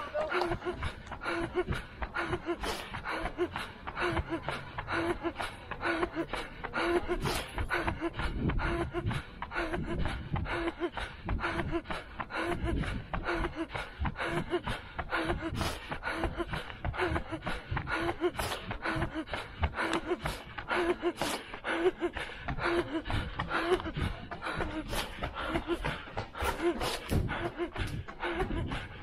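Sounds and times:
runner panting: 0.0s - 29.0s.

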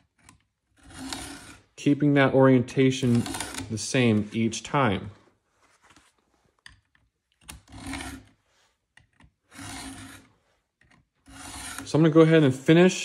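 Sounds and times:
file rasping on chainsaw tooth: 0.7s - 1.7s, 7.6s - 8.4s, 9.5s - 10.4s, 11.2s - 12.0s.

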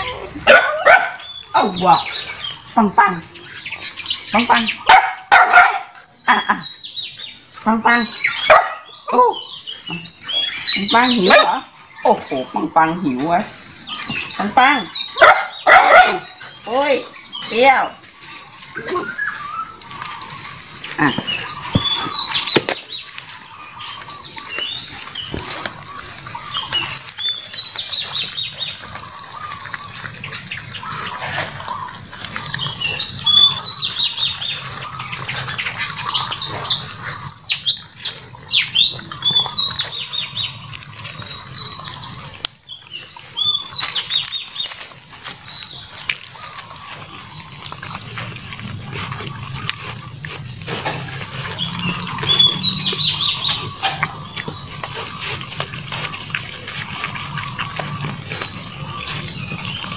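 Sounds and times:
puppies chewing and snuffling: 0.0s - 59.9s
teeth clicking on metal tray: 37.9s - 59.9s.

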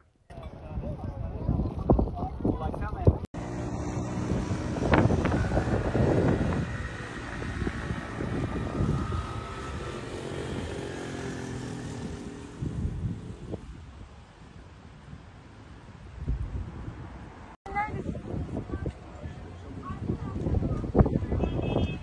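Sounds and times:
engine droning with whine: 3.4s - 11.6s.

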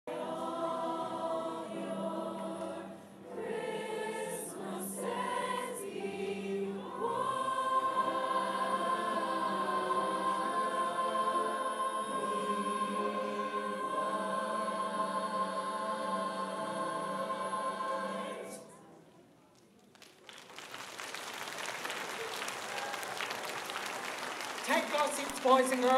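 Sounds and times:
choir singing sustained notes: 0.1s - 19.0s.

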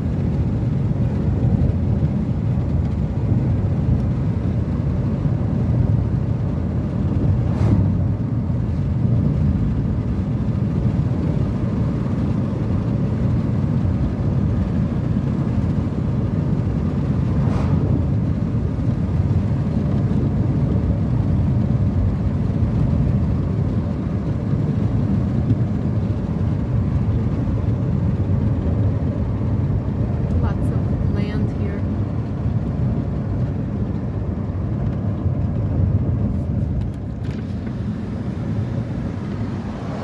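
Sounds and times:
car interior road rumble: 0.0s - 40.0s
faint swish: 7.3s - 8.2s, 17.3s - 18.1s.

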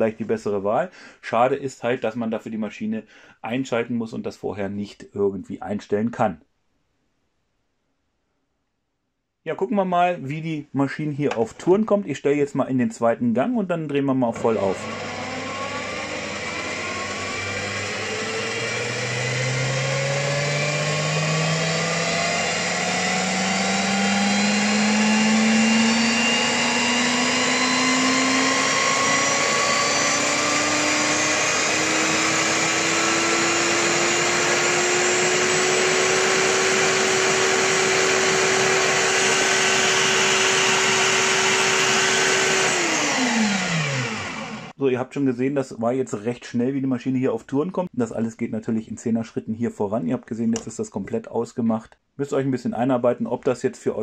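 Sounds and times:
drill press motor whine: 14.4s - 44.8s.

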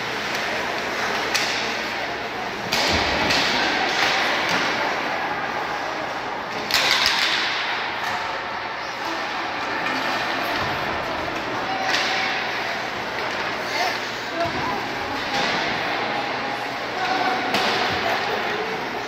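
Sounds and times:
sticks and puck hitting boards: 0.0s - 5.1s, 6.1s - 8.5s, 9.4s - 13.7s, 14.4s - 16.3s, 17.0s - 18.3s
rush of crowd noise: 0.0s - 19.0s
skating noise: 0.0s - 19.0s
spectators' voices: 0.0s - 19.0s.

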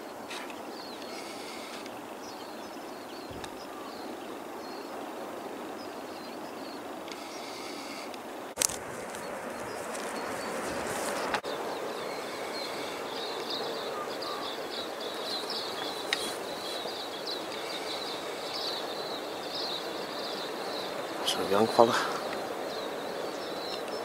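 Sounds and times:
steady rushing hiss: 0.0s - 24.0s.

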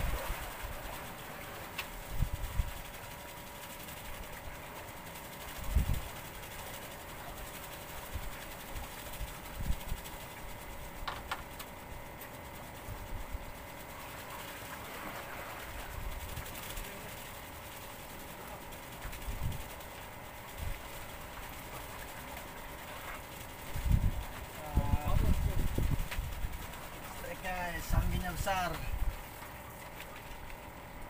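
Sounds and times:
wind rumbling on microphone: 2.1s - 2.8s, 5.6s - 6.1s, 19.2s - 19.7s, 23.7s - 26.7s.

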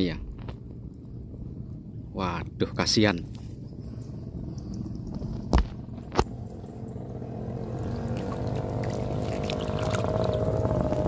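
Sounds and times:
vehicle engine passing: 4.0s - 11.0s.

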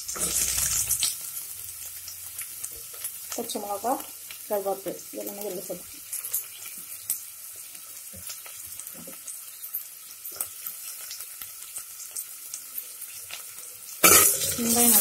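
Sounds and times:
food sizzling in oil: 0.0s - 15.0s.

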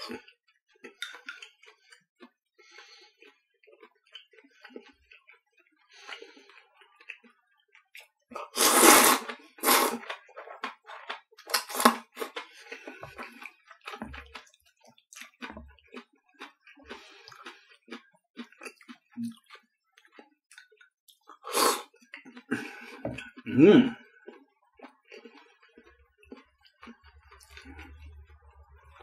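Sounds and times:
chewing with small clicks: 0.0s - 8.6s, 9.2s - 29.0s
person slurping noodles: 8.4s - 14.1s, 21.4s - 24.0s.

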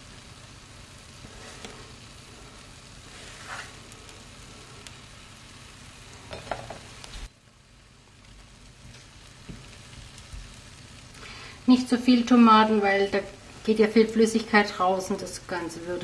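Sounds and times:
food sizzling in a frying pan: 0.0s - 16.0s
light taps of vegetables: 8.9s - 9.7s.

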